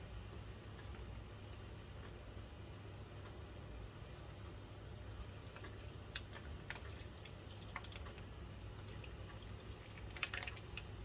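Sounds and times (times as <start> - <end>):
low steady hum: 0.0 - 11.0
cream dripping into pan: 5.2 - 11.0.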